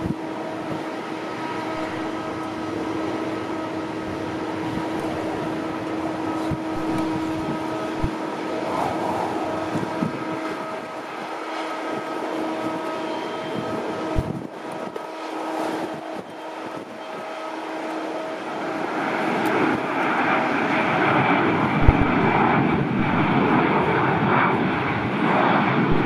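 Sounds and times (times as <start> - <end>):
jet engines roaring: 0.0 - 26.0
low thumps: 21.8 - 22.4.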